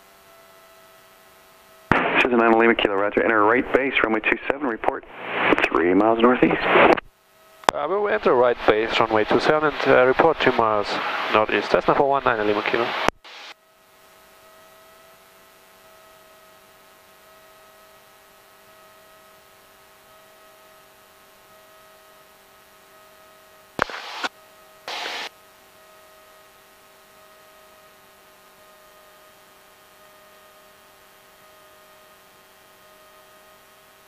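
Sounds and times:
electrical hum and hiss: 0:00.0 - 0:34.0
radio static bursts: 0:01.9 - 0:07.1, 0:07.7 - 0:13.6, 0:23.8 - 0:24.3, 0:24.9 - 0:25.3.

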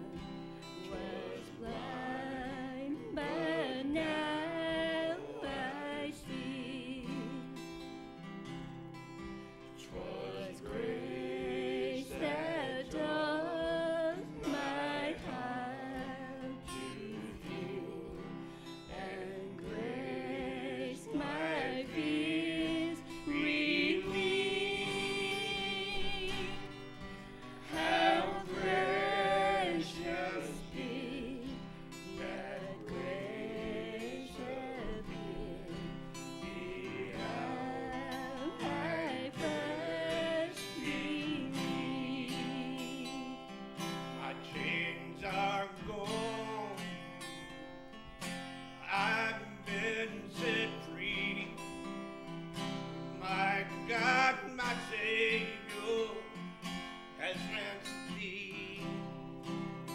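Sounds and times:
woman singing slow song: 0:00.0 - 0:07.7, 0:09.9 - 0:43.6
acoustic guitar: 0:00.0 - 0:59.9.

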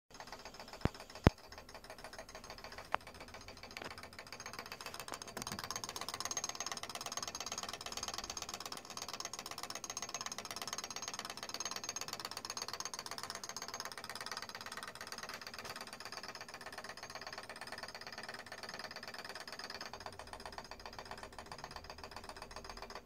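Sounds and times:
whirring rattle of clock gears: 0:00.1 - 0:23.0.

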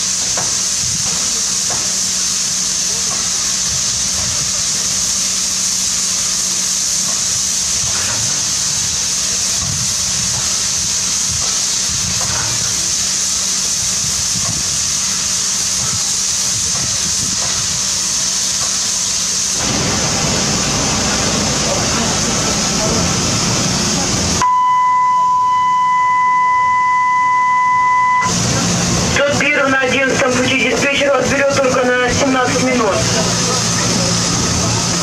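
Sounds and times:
steam hissing from locomotive: 0:00.0 - 0:24.4, 0:26.6 - 0:35.0
low hum: 0:19.6 - 0:35.0.

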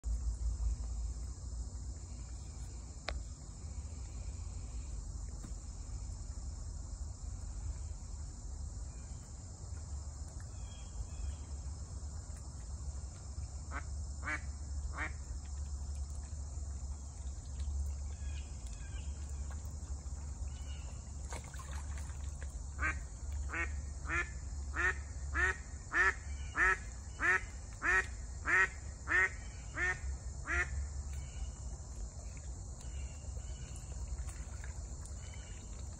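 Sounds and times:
duck quacking: 0:22.8 - 0:30.7.

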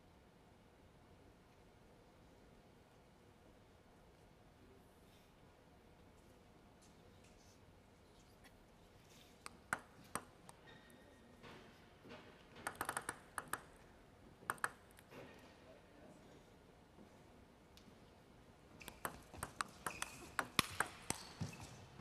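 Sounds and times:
table tennis ball bouncing: 0:09.5 - 0:10.6, 0:12.6 - 0:13.8, 0:14.4 - 0:15.1, 0:18.8 - 0:21.7.

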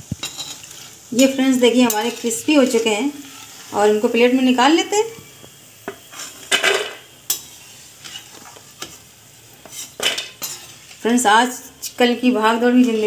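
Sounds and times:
food sizzling in hot oil: 0:00.0 - 0:13.0
ladle scraping metal pan: 0:00.2 - 0:04.0, 0:06.1 - 0:09.0, 0:09.6 - 0:11.0.

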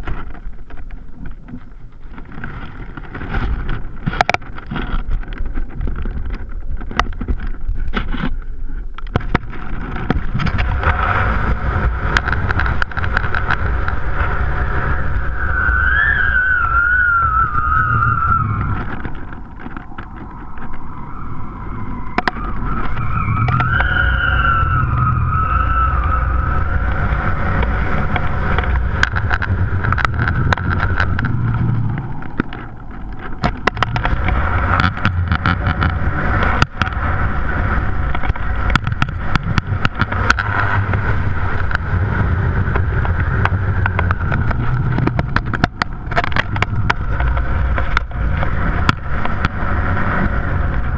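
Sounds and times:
clicks and knocks from rig: 0:00.0 - 0:11.2, 0:12.1 - 0:14.0, 0:18.6 - 0:20.8, 0:27.6 - 0:37.2, 0:42.7 - 0:49.6
wind buffeting microphone: 0:00.0 - 0:50.9.

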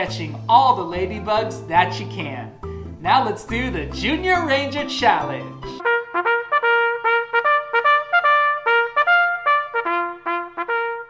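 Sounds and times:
solo trumpet playing a tune: 0:05.8 - 0:11.0.

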